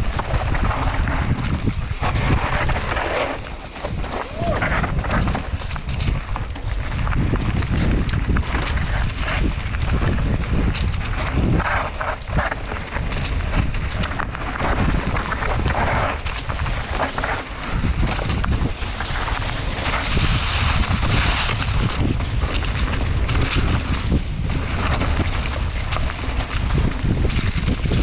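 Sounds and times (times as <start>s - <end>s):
tyre and trail noise: 0.0s - 28.0s
wind buffeting microphone: 0.0s - 28.0s.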